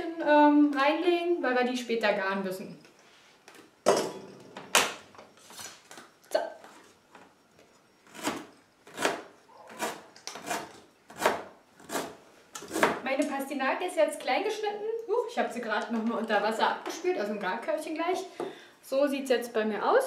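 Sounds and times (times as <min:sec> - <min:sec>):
knife chopping on cutting board: 0:08.2 - 0:13.0.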